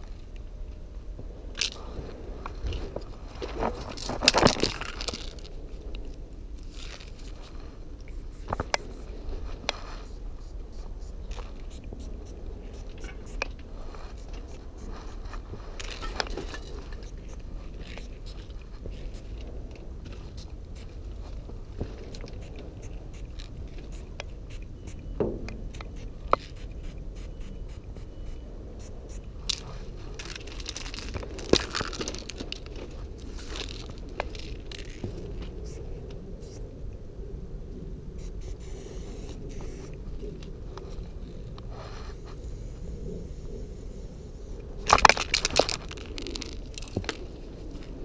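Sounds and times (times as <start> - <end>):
spray-paint cans hissing: 38.2 - 39.9.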